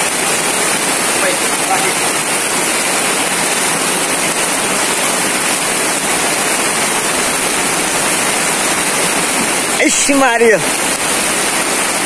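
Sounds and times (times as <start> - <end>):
rain on a tent roof: 0.0 - 12.0.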